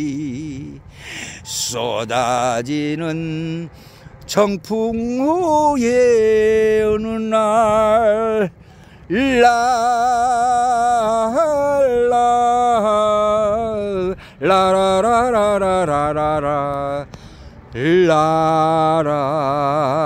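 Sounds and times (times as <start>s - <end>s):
man singing unaccompanied: 0.0s - 17.1s, 17.7s - 20.0s
short breath: 0.9s - 1.5s, 3.7s - 4.3s, 8.6s - 9.1s, 17.1s - 17.7s.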